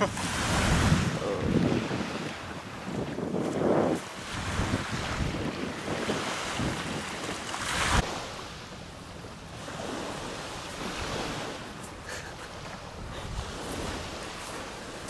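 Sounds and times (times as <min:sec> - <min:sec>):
wind rushing over microphone: 0:00.0 - 0:08.3
surf washing on beach: 0:00.0 - 0:15.0.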